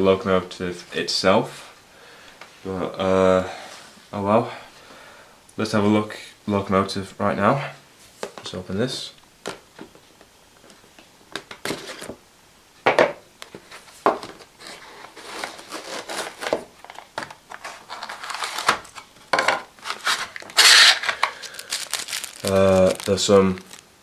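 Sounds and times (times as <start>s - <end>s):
cardboard box being opened: 14.6s - 16.6s, 17.6s - 19.0s, 19.8s - 23.8s
plastic bag crinkling: 14.6s - 19.2s, 19.8s - 24.0s.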